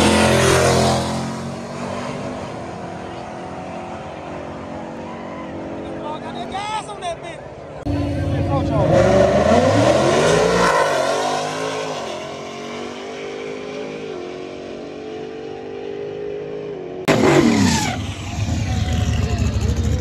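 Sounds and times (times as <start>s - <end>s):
drag car accelerating: 0.0s - 6.3s, 7.8s - 20.0s
car engine revving: 7.8s - 20.0s.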